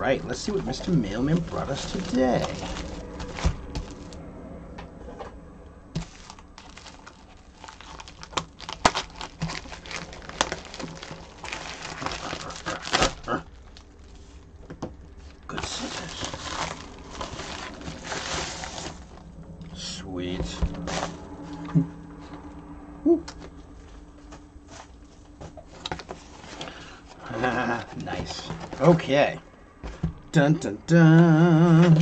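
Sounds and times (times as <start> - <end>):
plastic mailer crinkling and rustling: 0.1 - 4.2, 6.0 - 19.4, 20.3 - 21.5, 24.2 - 30.3.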